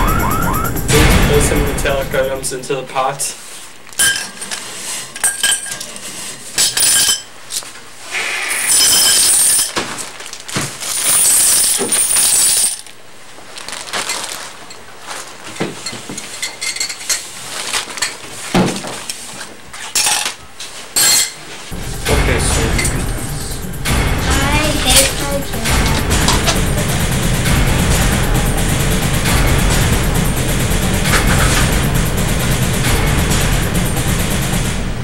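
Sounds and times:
loud low rumble: 0.0s - 2.8s, 21.7s - 35.0s
metal items clinking in saucepan: 15.6s - 18.3s.

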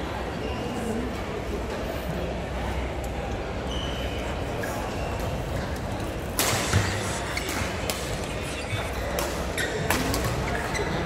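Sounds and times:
sports hall noise: 0.0s - 11.0s
rackets hitting shuttlecock: 6.3s - 10.7s.

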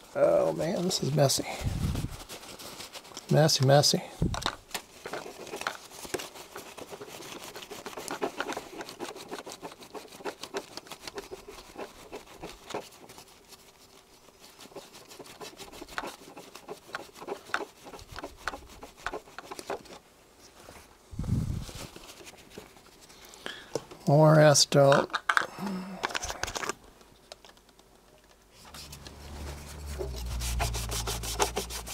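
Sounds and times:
cloth scrubbing on plastic: 0.4s - 4.0s, 4.9s - 20.8s, 28.6s - 31.9s.

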